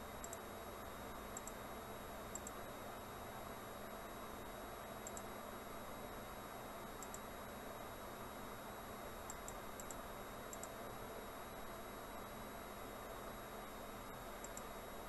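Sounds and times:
steady recording hiss: 0.0 - 15.0
computer mouse clicks: 0.2 - 0.4, 1.3 - 1.6, 2.3 - 2.6, 5.0 - 5.3, 7.0 - 7.2, 9.3 - 10.8, 14.4 - 14.7.

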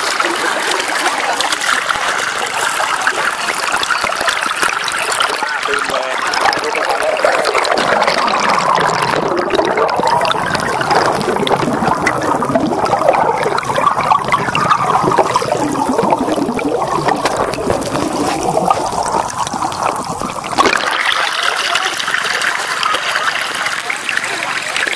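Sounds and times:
muffled underwater gurgling: 0.0 - 24.9.

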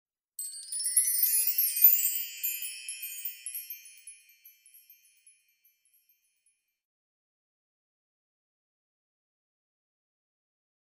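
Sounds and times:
shimmering chime: 0.4 - 6.6.

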